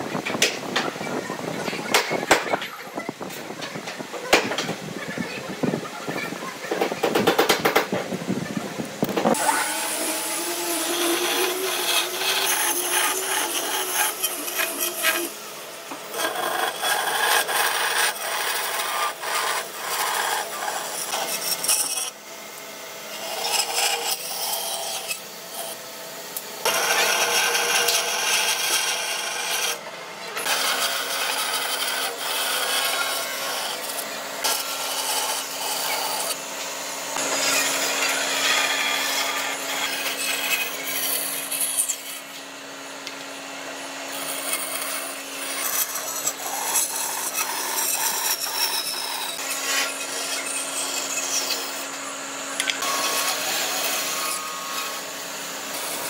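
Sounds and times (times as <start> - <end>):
motor hum: 7.7 - 56.0
bandsaw rasping through wood: 9.1 - 22.2, 23.1 - 25.8, 26.6 - 29.8, 30.4 - 56.0.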